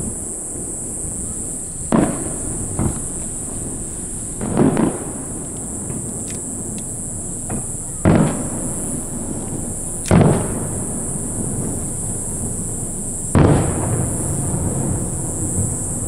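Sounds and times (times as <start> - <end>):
firework shells bursting with booms: 0.0 - 16.0
steady high hiss: 0.0 - 16.0.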